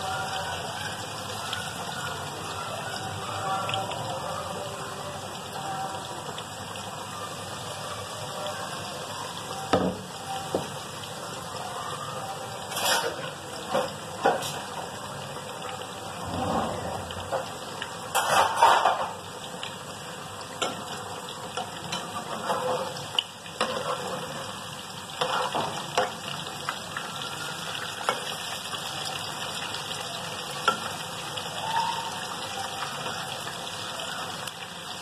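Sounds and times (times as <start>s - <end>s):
deep-frying in hot oil sizzle: 0.0s - 35.0s.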